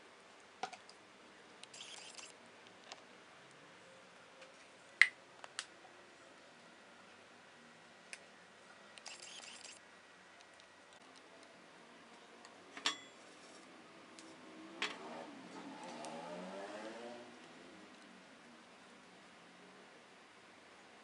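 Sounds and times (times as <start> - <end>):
sharp clicks: 9.0 - 9.8.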